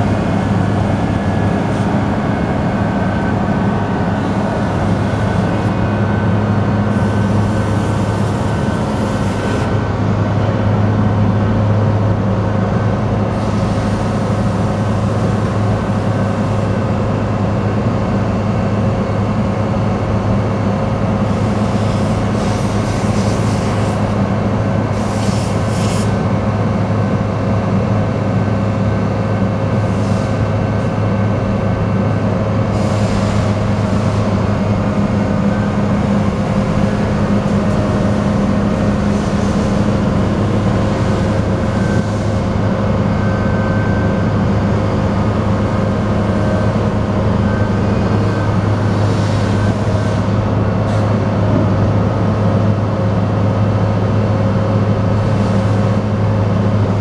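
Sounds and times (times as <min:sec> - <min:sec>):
hydraulic whine: 0:00.0 - 0:10.6, 0:29.7 - 0:57.0
diesel engine hum: 0:00.0 - 0:57.0.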